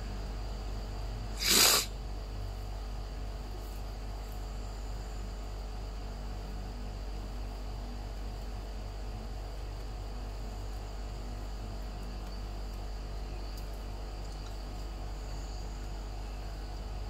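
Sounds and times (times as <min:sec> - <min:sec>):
steady low hum: 0:00.0 - 0:17.0
short sharp hissing burst: 0:01.4 - 0:01.9.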